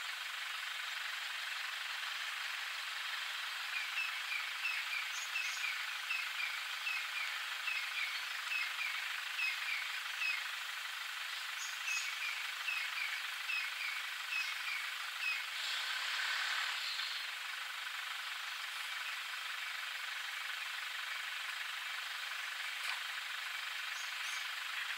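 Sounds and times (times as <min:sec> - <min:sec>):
steady hiss: 0:09.9 - 0:24.9.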